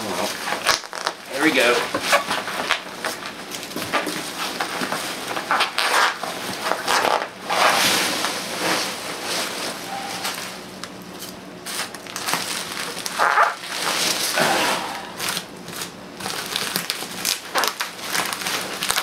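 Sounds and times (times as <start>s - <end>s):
packing peanuts rustling and crunching: 3.0s - 14.4s, 15.2s - 19.0s.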